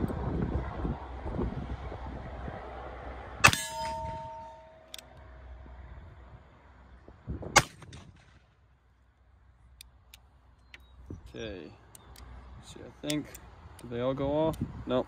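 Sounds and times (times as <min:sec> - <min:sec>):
metallic ring of steel target: 0:03.4 - 0:05.0.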